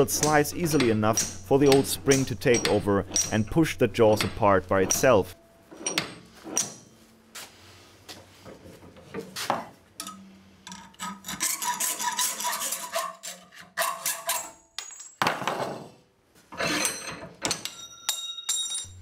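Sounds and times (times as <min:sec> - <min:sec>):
metal clanks on a vise: 0:00.0 - 0:06.9, 0:16.5 - 0:18.9
metal rasping strokes: 0:10.7 - 0:14.6.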